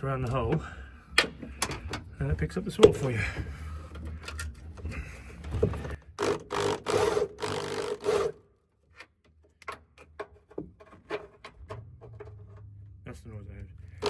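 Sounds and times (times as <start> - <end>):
electric drill cutting sheet metal: 6.2 - 8.4.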